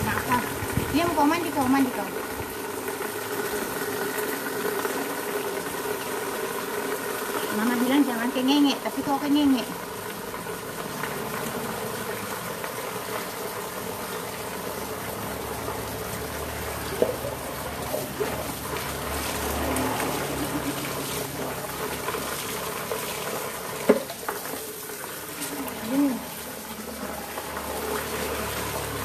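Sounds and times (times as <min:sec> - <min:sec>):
water splashing into plastic bucket: 0:10.7 - 0:29.0.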